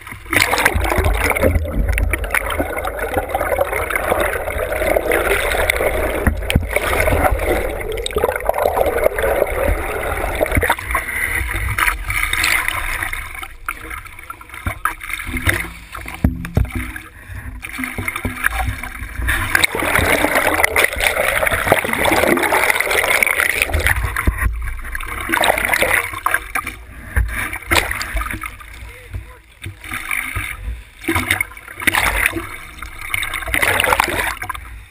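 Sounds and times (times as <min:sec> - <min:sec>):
water rushing and splashing: 0:00.0 - 0:34.9
low rumble: 0:00.8 - 0:14.9.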